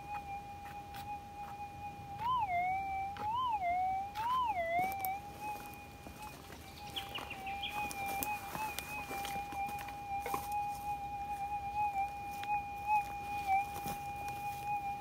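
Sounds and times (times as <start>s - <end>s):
metal detector rising tone: 0.0s - 15.0s
metal detector threshold hum: 0.0s - 15.0s.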